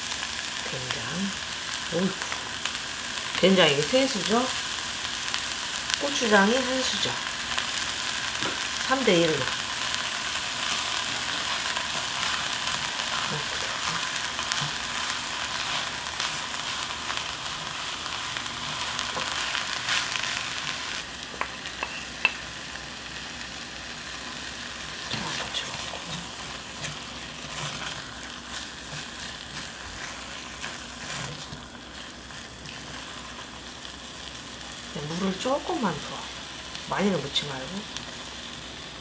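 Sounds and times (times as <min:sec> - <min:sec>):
vegetables sizzling in pot: 0:00.0 - 0:39.0
wooden spatula scraping: 0:10.8 - 0:22.3, 0:25.0 - 0:33.4.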